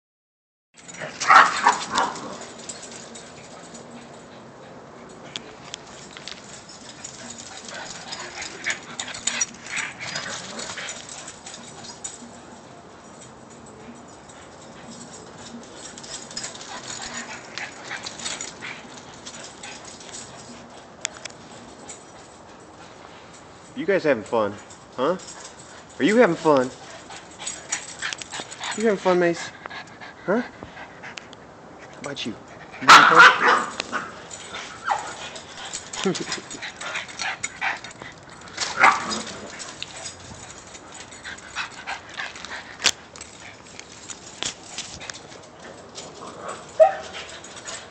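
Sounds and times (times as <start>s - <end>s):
dogs running and playing: 0.8s - 47.9s
dogs whimpering: 33.6s - 43.7s.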